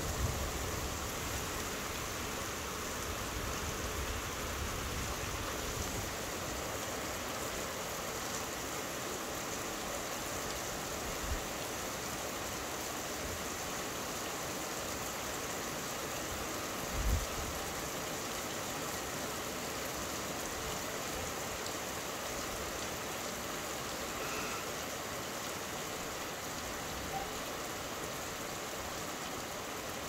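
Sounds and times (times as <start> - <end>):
steady rain falling: 0.0 - 30.0.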